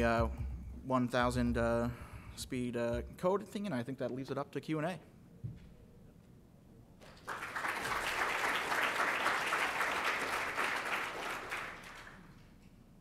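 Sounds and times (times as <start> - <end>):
audience applauding: 7.0 - 12.4.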